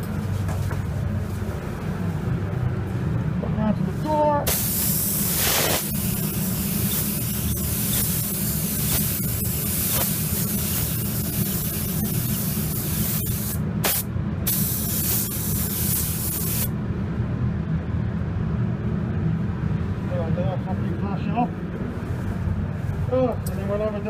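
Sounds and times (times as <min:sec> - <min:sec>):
steady low hum: 0:00.0 - 0:24.0
paint spray gun hissing: 0:04.5 - 0:16.7.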